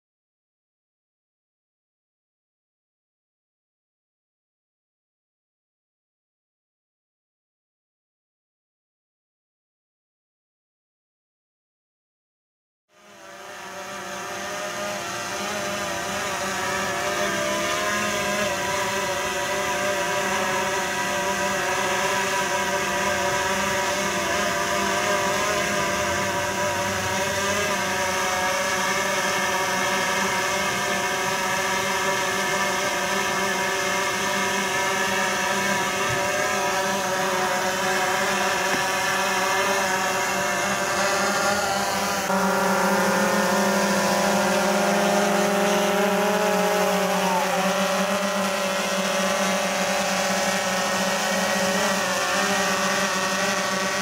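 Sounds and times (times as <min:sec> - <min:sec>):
quadcopter propellers whining: 0:12.9 - 0:54.0.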